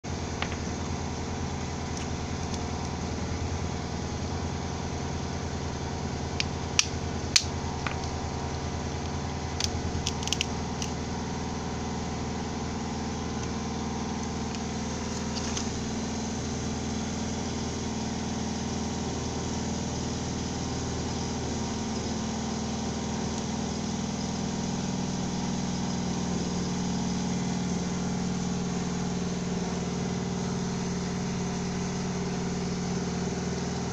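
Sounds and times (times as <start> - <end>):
engine humming: 0.1 - 17.8
sharp clicks: 9.6 - 11.0.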